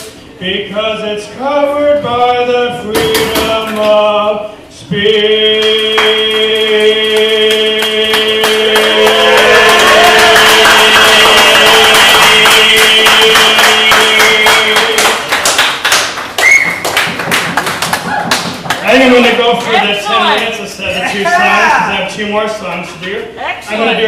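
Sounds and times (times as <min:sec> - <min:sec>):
man singing a long note: 0:00.4 - 0:15.2.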